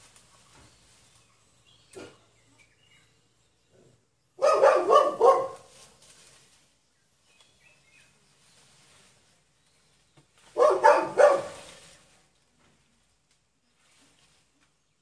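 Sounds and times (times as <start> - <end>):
dog barking: 4.4 - 5.7, 10.5 - 11.7
faint rustling: 5.2 - 14.9.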